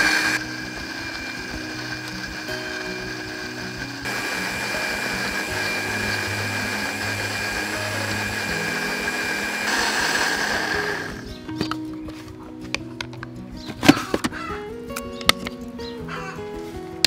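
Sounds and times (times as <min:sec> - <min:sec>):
blender motor whining: 0:00.0 - 0:11.3.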